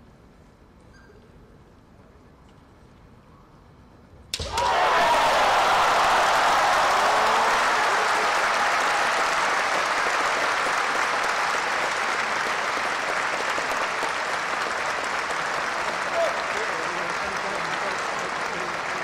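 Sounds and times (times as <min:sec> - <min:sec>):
crowd applauding in a hall: 0:04.4 - 0:19.0.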